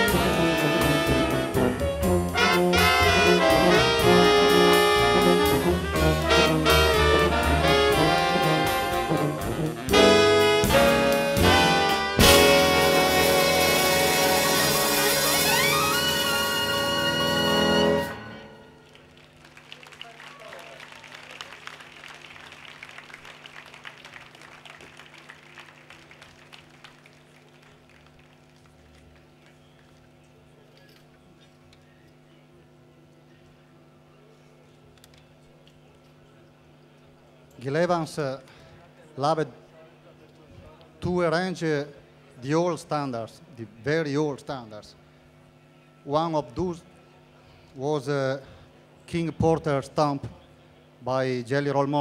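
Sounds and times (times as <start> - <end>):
double bass: 0.0 - 18.7
trombone: 0.0 - 18.8
tuba: 0.0 - 18.8
saxophones: 0.0 - 18.9
piano: 0.0 - 19.0
trumpet: 0.0 - 19.0
crowd applause: 18.6 - 30.0.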